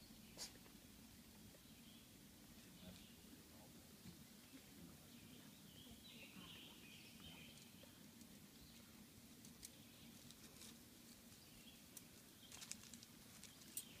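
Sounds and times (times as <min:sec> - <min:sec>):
soft clicks and rustles: 0:07.5 - 0:14.0.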